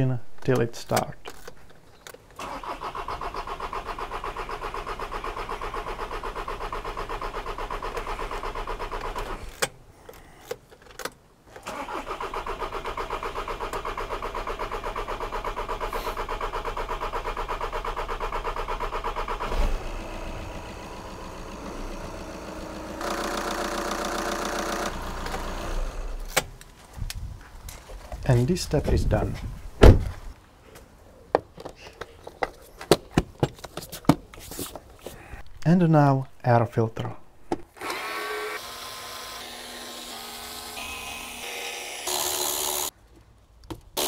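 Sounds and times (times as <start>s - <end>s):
diesel engine cranking: 2.4s - 9.8s, 11.6s - 26.5s
diesel engine running: 13.0s - 26.3s.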